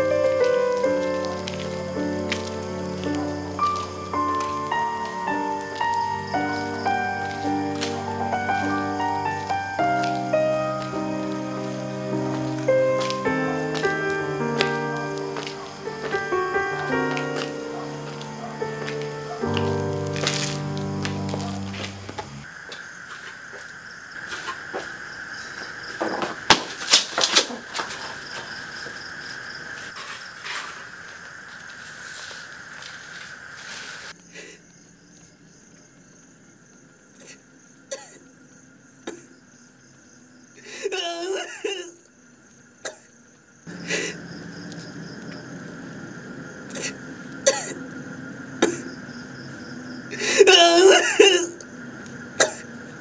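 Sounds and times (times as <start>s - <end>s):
background hum: 0.0s - 53.0s
crickets chirring: 0.0s - 53.0s
man coughing: 46.8s - 47.8s, 48.6s - 48.9s, 50.2s - 51.6s, 52.4s - 52.7s.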